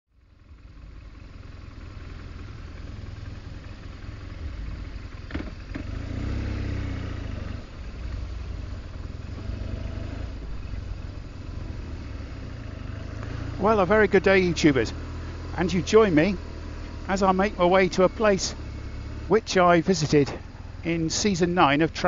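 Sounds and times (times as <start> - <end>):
motorcycle engine running: 0.1 - 22.0.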